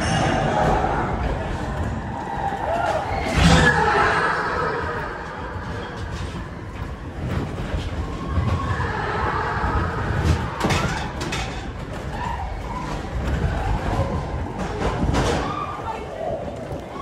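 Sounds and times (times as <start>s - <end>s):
coaster car rattling: 0.0s - 17.0s
wheels rumbling on rail: 0.0s - 17.0s.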